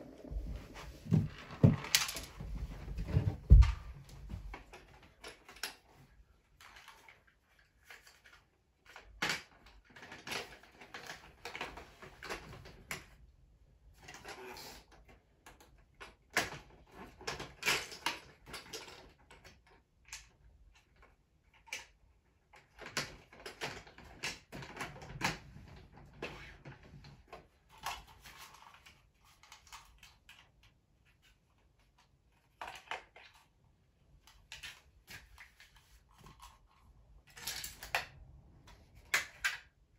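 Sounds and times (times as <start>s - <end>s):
plastic toy parts clicking: 34.2s - 38.2s.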